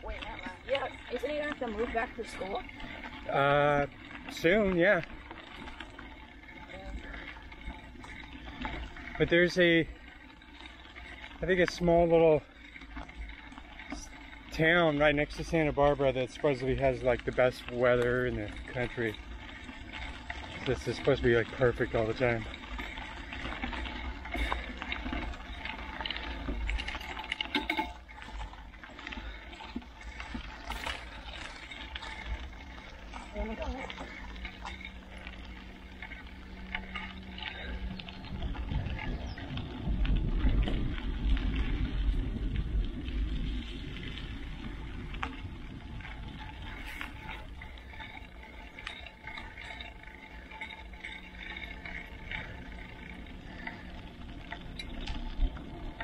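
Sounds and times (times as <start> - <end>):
bike tyres rolling on gravel: 0.0 - 56.0
gravel and bike rattles: 0.0 - 56.0
wind rumble on microphone: 36.2 - 56.0.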